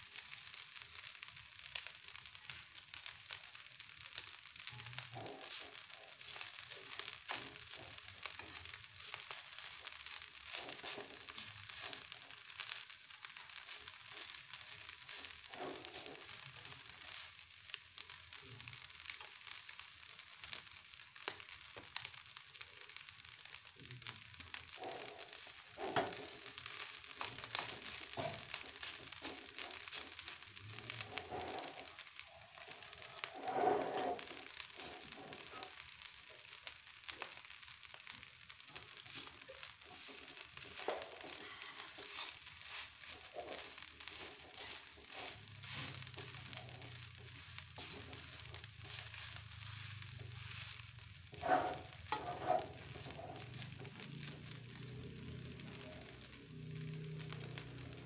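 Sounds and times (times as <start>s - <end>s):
rice sizzling in a wok: 0.0s - 58.0s
spatula knocking and scraping pan: 24.8s - 26.4s, 39.9s - 50.0s, 51.3s - 53.5s.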